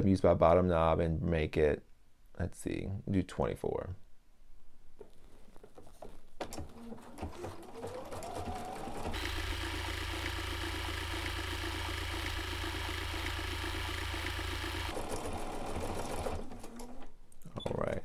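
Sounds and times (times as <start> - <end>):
sewing machine stitching: 6.6 - 17.2.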